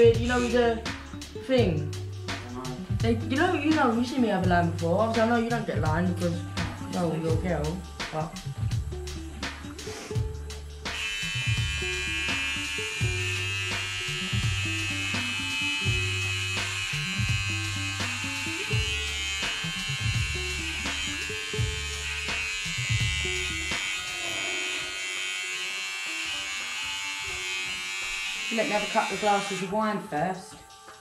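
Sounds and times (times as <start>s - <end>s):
electric hair clippers buzzing: 0.0s - 1.0s, 10.9s - 29.8s
background music with bass line: 0.0s - 24.1s.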